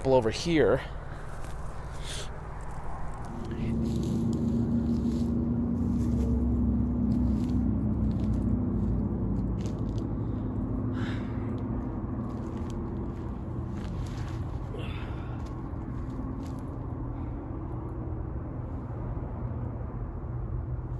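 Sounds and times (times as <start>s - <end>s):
low engine-like rumble: 0.0s - 20.9s
footsteps crunching on dry debris: 1.0s - 10.6s, 11.8s - 16.9s.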